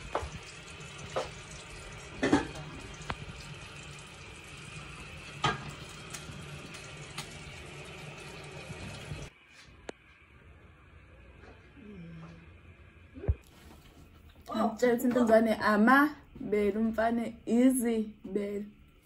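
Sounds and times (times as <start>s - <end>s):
bread sizzling in a frying pan: 0.0s - 9.3s.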